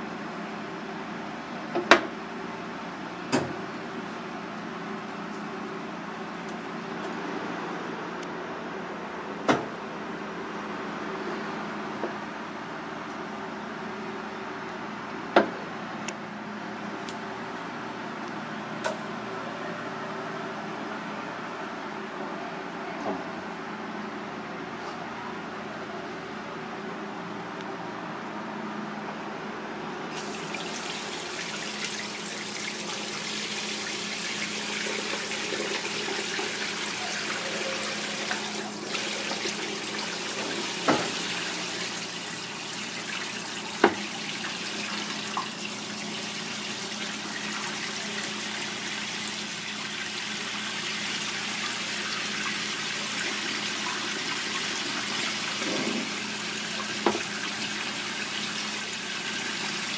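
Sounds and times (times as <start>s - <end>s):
tap water spraying into sink: 30.2s - 49.4s, 50.0s - 59.9s.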